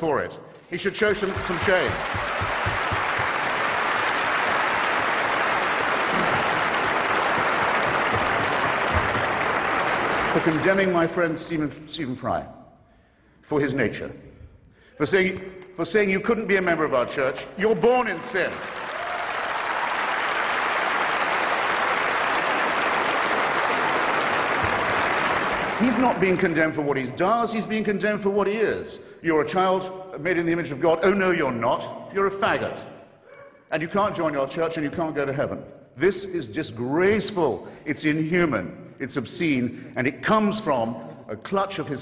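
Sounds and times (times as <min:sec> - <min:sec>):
audience applauding: 0:00.8 - 0:11.2, 0:18.0 - 0:26.7.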